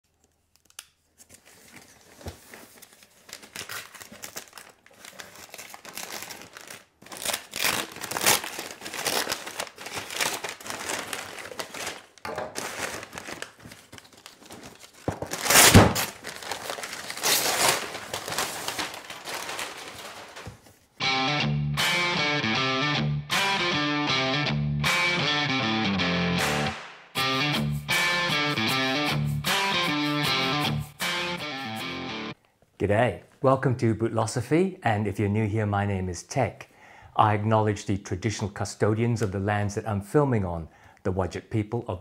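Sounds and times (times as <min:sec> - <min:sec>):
paper wrapping torn and crumpled: 0:00.6 - 0:20.8.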